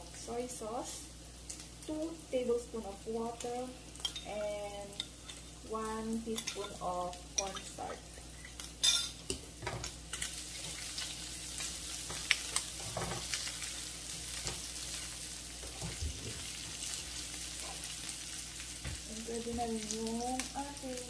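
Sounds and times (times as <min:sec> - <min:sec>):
sausage sizzling in a frying pan: 0:00.0 - 0:21.0.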